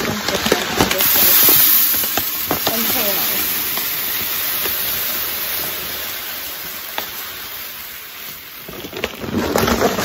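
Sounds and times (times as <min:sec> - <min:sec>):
rice grains pouring into container: 0:00.0 - 0:10.0.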